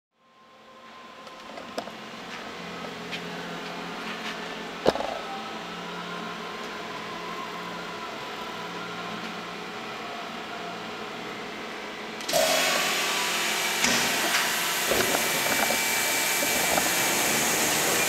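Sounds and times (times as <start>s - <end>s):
lathe humming: 2.4s - 18.0s.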